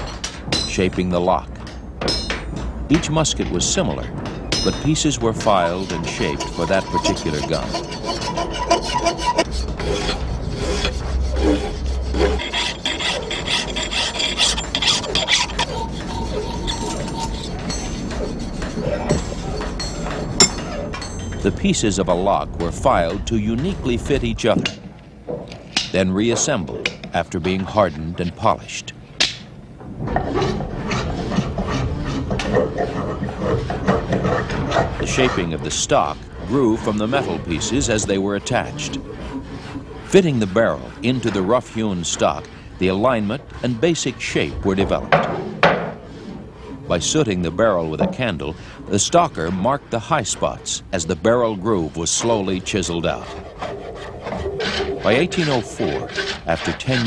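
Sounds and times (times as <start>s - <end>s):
hand file rasping on metal: 4.6s - 21.5s, 30.3s - 57.0s
knocks of bench work: 45.1s - 46.0s.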